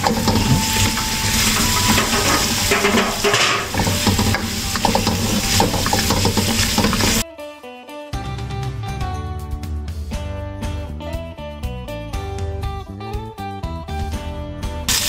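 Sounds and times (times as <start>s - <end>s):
spatula scraping and clacking on pan: 0.0s - 7.2s
vegetables sizzling in hot oil: 0.0s - 7.2s.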